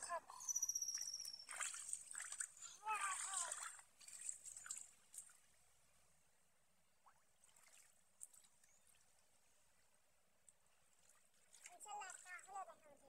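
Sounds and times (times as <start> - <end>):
faint water splashes: 0.0 - 6.3, 7.0 - 13.0
faint ticks and drips: 0.8 - 5.7, 7.0 - 13.0.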